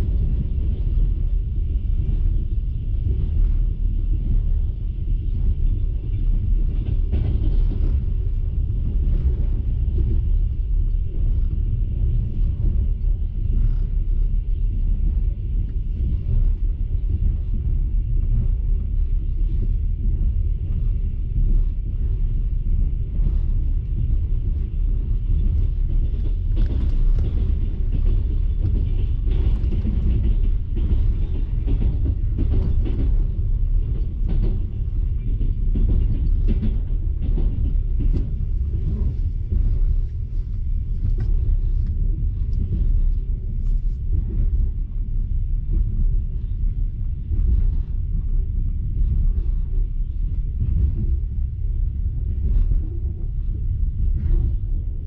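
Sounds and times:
train carriage rumbling: 0:00.0 - 0:55.0
light knocks and rattles: 0:15.6 - 0:55.0.

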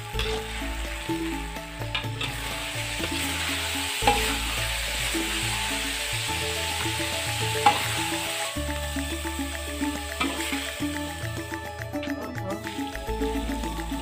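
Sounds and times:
metal spatula scraping: 0:00.0 - 0:00.7, 0:01.9 - 0:04.6, 0:07.6 - 0:08.0
food sizzling in a wok: 0:00.0 - 0:14.0
spatula clanking on pan: 0:01.9 - 0:04.6, 0:06.8 - 0:08.3, 0:10.1 - 0:10.8.

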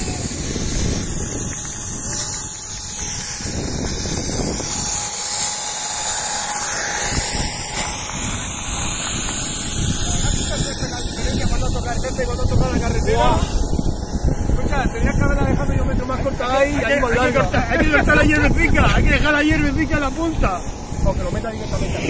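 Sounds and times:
jet turbine whine: 0:00.0 - 0:22.0
low rumble: 0:06.8 - 0:22.0.

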